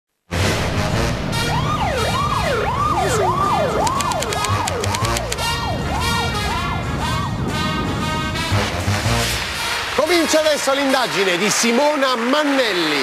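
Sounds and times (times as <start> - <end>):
siren sound effect: 1.2 - 6.9
title music with steady beat: 3.8 - 5.5.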